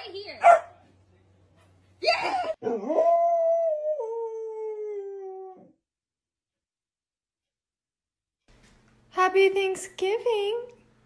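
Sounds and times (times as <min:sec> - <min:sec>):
puppy howling: 0:02.6 - 0:05.8.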